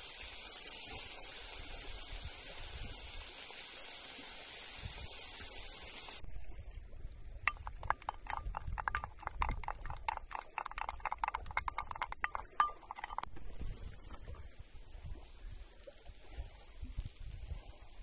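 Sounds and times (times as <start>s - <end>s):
patties sizzling on a grill: 0.0s - 6.2s
wooden spoon stirring in bowl: 7.5s - 13.3s.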